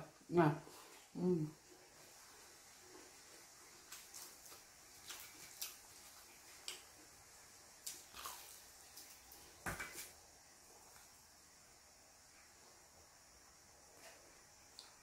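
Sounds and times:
crunching fried chicken: 3.7s - 7.0s, 7.8s - 9.4s.

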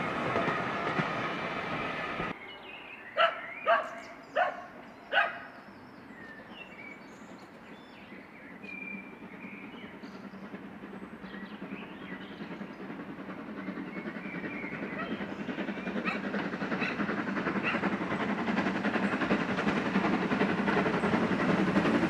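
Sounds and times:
dog barking: 3.2s - 5.5s, 16.8s - 17.0s
steam locomotive exhaust beats: 7.0s - 22.0s.

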